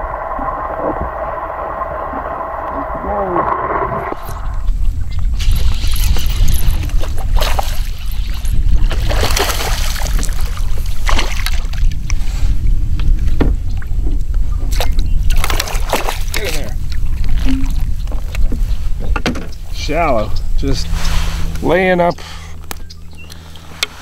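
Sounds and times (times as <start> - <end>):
wind rumbling on microphone: 0.0 - 24.0.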